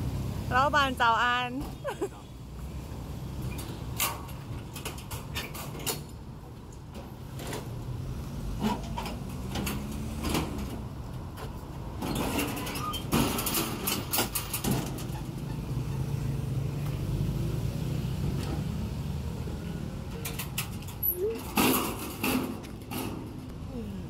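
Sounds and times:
metal truck panels clanking: 8.6 - 15.6, 20.2 - 23.5.

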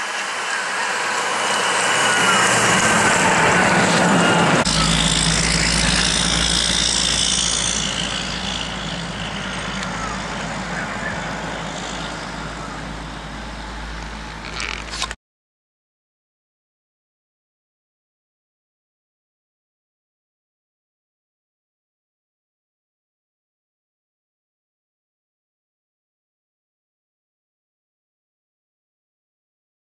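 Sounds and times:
truck engine pulling uphill: 0.0 - 15.2
deep rumble: 0.9 - 15.2.

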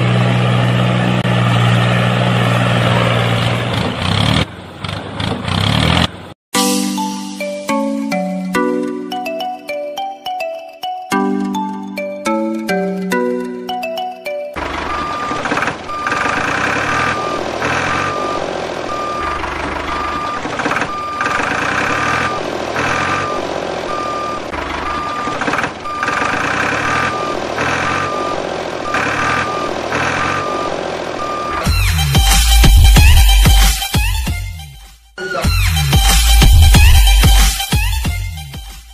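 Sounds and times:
truck engine rumble: 0.0 - 6.4, 11.1 - 34.6
reversing beeps: 14.8 - 31.9.

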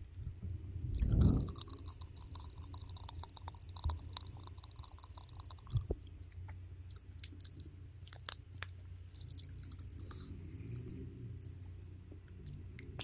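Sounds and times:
wet mouth clicks and smacks: 0.9 - 6.0.

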